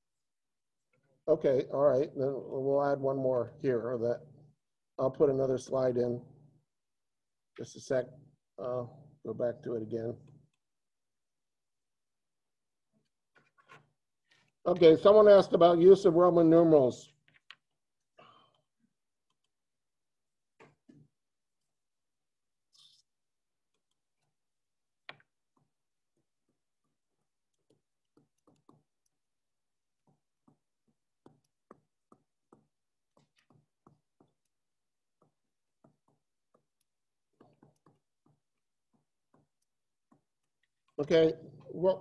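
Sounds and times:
pen taps and clicks: 17.2 - 17.7, 25.0 - 29.3, 29.9 - 41.0.

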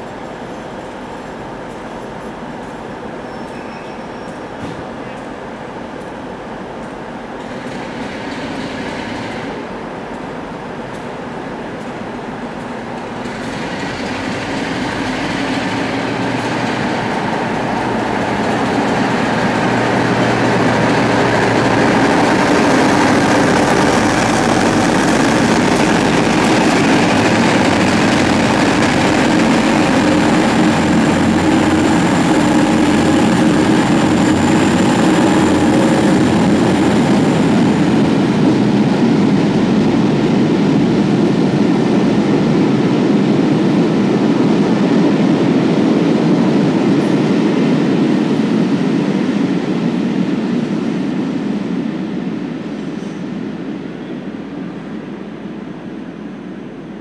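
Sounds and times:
train wheels rumbling on rails: 0.0 - 57.0
diesel locomotive engine running: 4.1 - 57.0.

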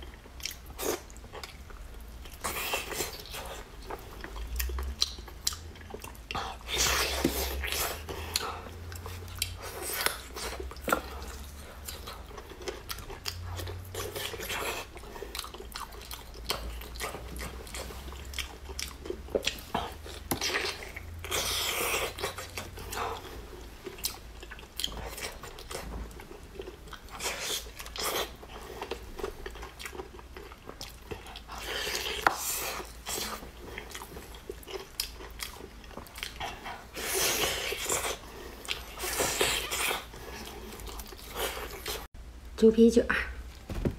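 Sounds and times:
wet chewing of meat: 0.0 - 42.1.

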